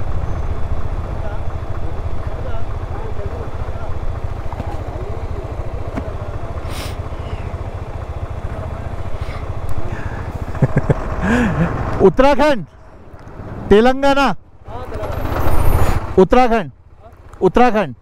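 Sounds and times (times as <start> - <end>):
motorcycle engine running: 0.0 - 18.0
faint voices: 2.3 - 10.3.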